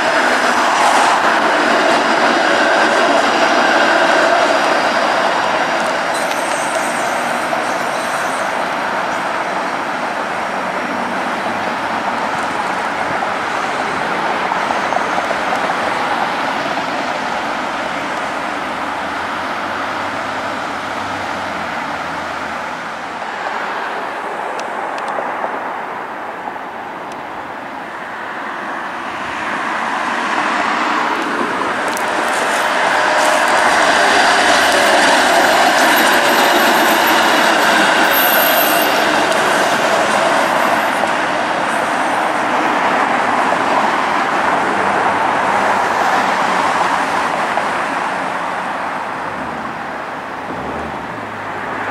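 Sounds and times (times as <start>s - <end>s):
street traffic: 0.0s - 51.9s
streetcar rolling: 0.0s - 51.9s.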